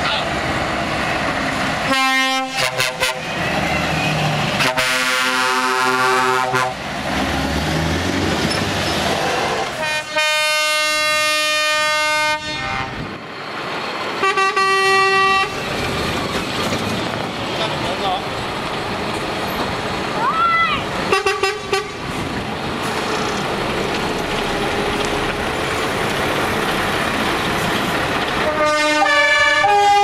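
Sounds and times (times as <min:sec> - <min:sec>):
diesel engines running: 0:00.0 - 0:30.0
truck air horns: 0:01.8 - 0:06.8, 0:09.4 - 0:13.1, 0:14.2 - 0:15.6, 0:21.1 - 0:22.0, 0:28.4 - 0:30.0.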